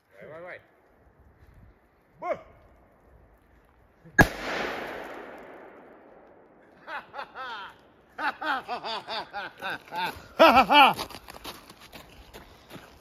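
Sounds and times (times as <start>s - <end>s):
man laughing: 6.7s - 11.1s.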